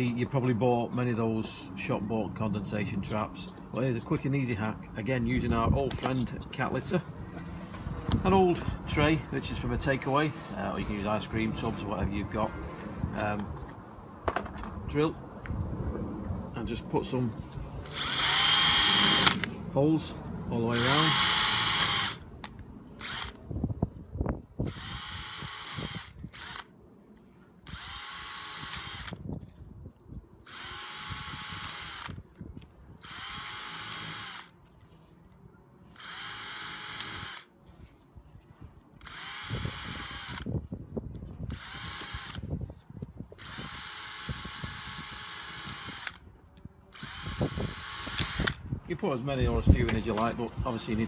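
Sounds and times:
cordless drill whining: 17.8 - 19.5, 20.7 - 22.3, 23.0 - 23.4, 24.6 - 26.7, 27.7 - 29.2, 30.5 - 32.2, 33.0 - 34.5, 35.9 - 37.5, 39.0 - 40.5, 41.5 - 42.5, 43.4 - 46.2, 46.9 - 48.6.

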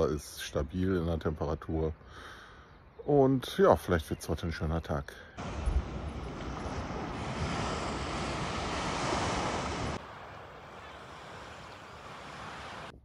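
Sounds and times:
sea surf rushing: 5.4 - 13.0
wind buffeting microphone: 5.4 - 13.0.

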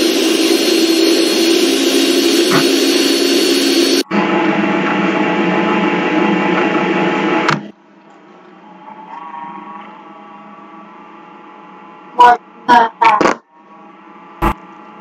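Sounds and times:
blender motor whirring: 0.0 - 4.0.

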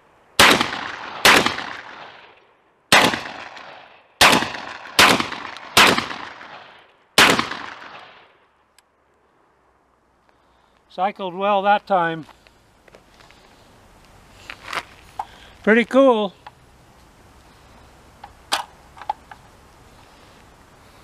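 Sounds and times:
shotgun shots with echo: 0.4 - 2.3, 2.9 - 8.3.

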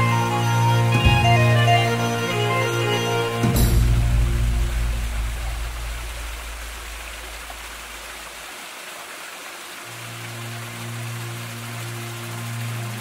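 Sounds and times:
background music with bass: 0.0 - 7.0
waterfall splashing over rock: 3.4 - 13.0.

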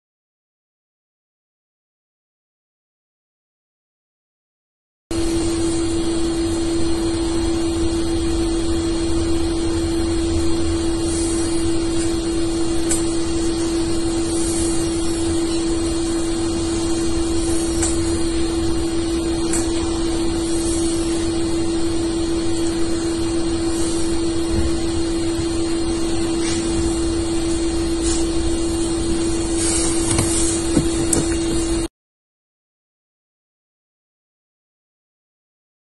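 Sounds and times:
steady single-pitch hum: 5.1 - 31.9.

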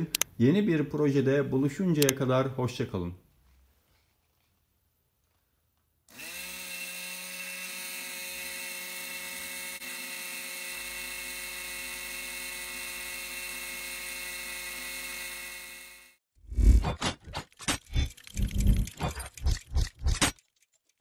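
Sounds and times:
small electric motor whine: 6.1 - 16.2.

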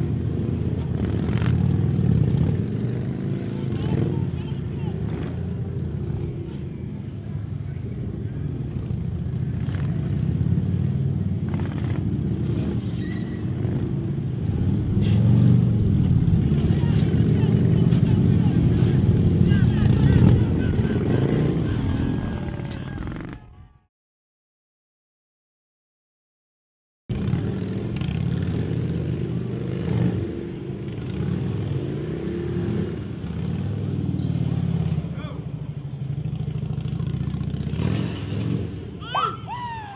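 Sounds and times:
motorcycle engines rumbling: 0.0 - 23.8, 27.1 - 39.9.

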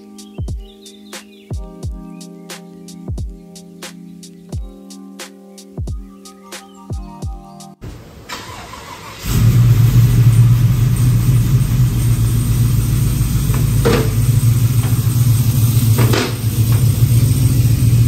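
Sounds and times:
car engine running steadily: 9.2 - 18.0.

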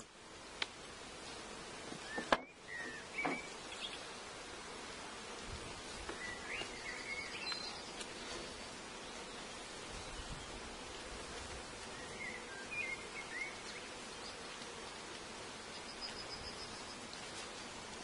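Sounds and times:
honeybees buzzing: 0.0 - 18.0
steady outdoor hiss: 0.0 - 18.0
bird chirps: 2.0 - 4.0, 6.2 - 8.0.

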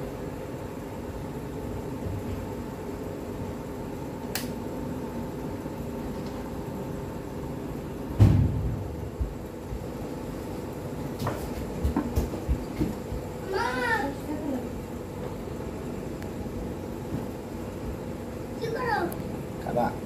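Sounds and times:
steady background hum: 0.0 - 20.0
loud low thump: 8.2 - 9.3.

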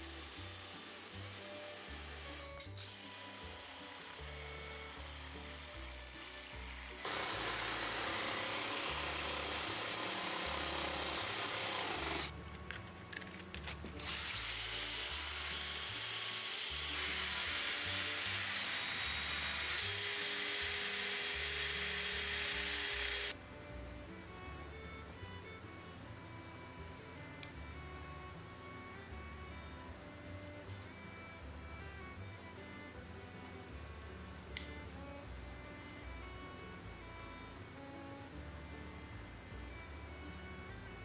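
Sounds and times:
cordless drill motor whining: 0.0 - 12.3, 14.0 - 23.4
wood rasping and sanding: 0.0 - 12.3, 14.0 - 23.3
background music with steady beat: 0.0 - 41.0.

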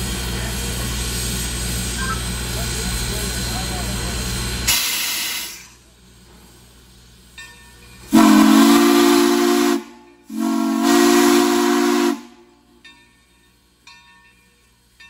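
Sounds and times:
steam locomotive whistle blasts: 8.1 - 12.5.

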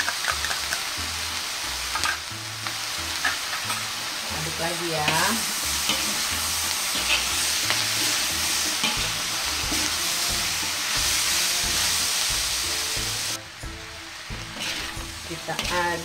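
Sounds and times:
food sizzling in a wok: 0.0 - 16.0
metal spatula scraping a pan: 3.1 - 4.0, 4.9 - 12.6, 14.5 - 16.0.

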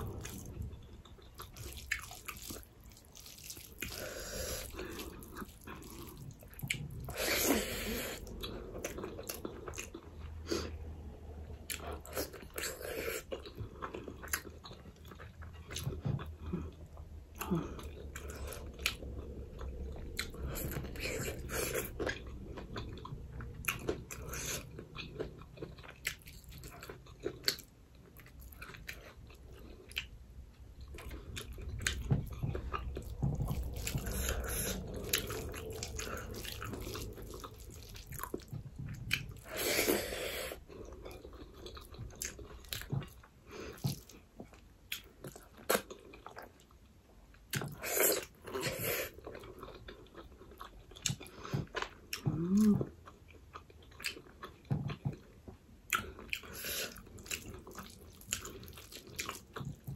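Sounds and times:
chewing and lip-smacking: 0.0 - 10.4, 11.7 - 59.9.

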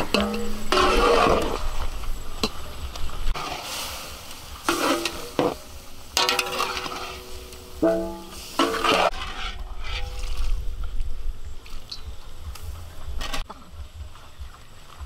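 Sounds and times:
food sizzling in a pan: 3.3 - 9.4.

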